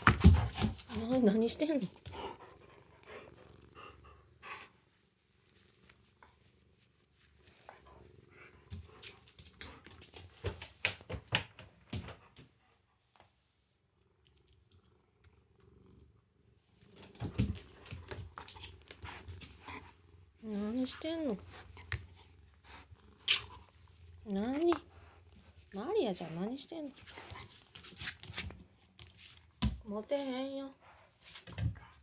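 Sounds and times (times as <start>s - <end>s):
cat purring: 0.5s - 10.8s, 13.6s - 29.0s.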